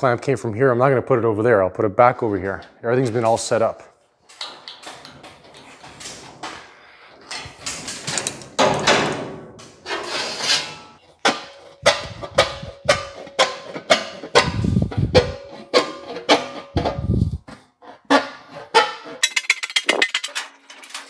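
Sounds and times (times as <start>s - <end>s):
metal clanks: 7.2s - 17.3s, 18.1s - 21.0s
sheet metal panel rattling: 10.6s - 17.3s, 18.1s - 21.0s.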